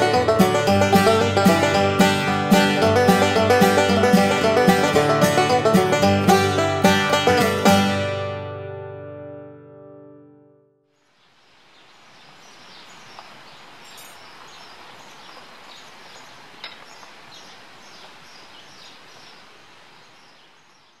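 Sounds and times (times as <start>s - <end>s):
banjo note: 0.0s - 10.7s
outdoor ambient hiss: 10.9s - 21.0s.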